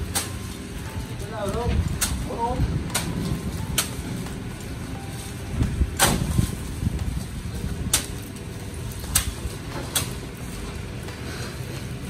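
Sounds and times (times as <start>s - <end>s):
low rumble: 0.6s - 11.0s
sugarcane bundles knocking on truck bed: 6.0s - 6.5s.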